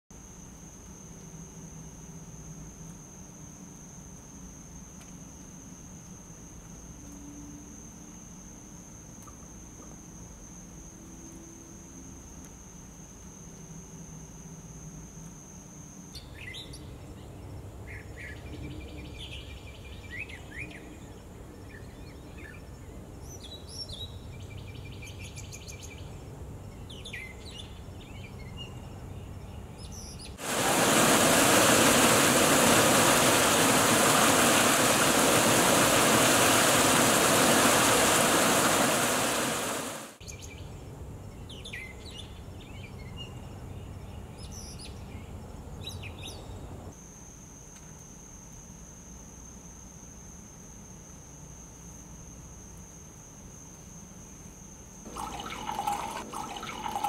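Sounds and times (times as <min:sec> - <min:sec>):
fountain water pouring into basin: 0:30.4 - 0:40.2, 0:55.1 - 0:57.0.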